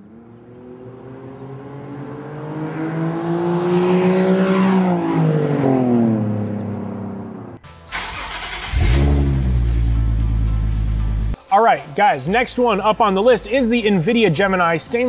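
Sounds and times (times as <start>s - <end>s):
car engine revving: 0.0s - 11.4s.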